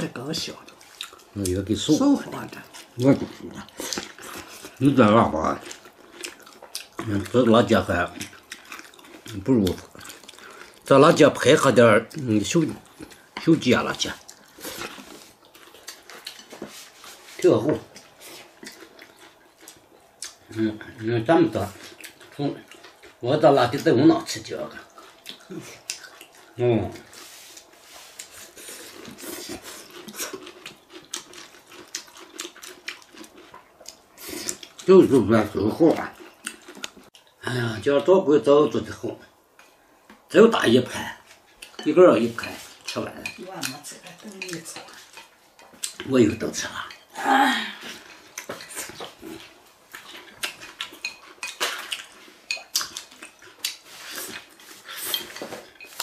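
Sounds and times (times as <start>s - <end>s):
people chewing and slurping: 0.0s - 37.7s, 38.7s - 56.0s
chopsticks clicking against bowls: 50.0s - 53.8s.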